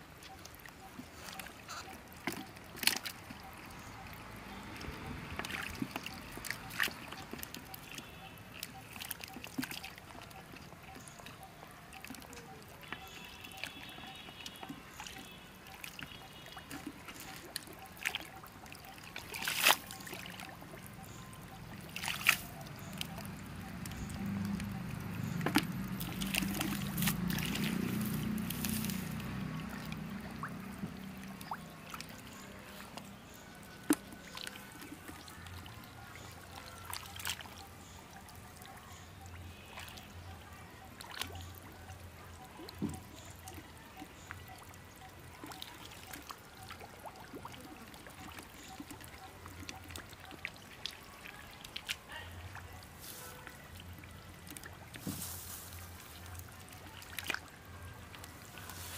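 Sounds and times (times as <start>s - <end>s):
water trickling and sloshing: 0.0s - 58.9s
sharp splash-like clicks: 0.2s - 40.2s, 40.9s - 58.9s.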